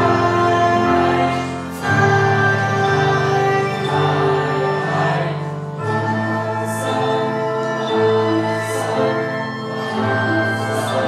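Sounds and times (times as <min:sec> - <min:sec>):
choir singing: 0:00.0 - 0:11.0
small orchestra playing: 0:00.0 - 0:11.0.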